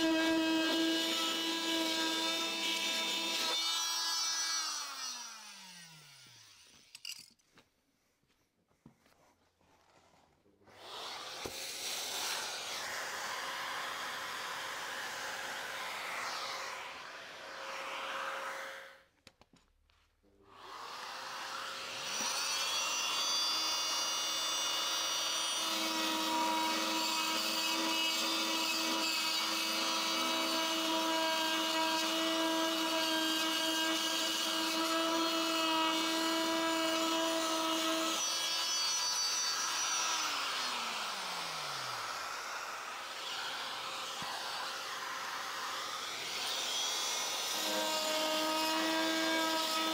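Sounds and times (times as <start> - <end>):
multi-tool grinding grout: 0.0 - 7.4, 20.5 - 49.9.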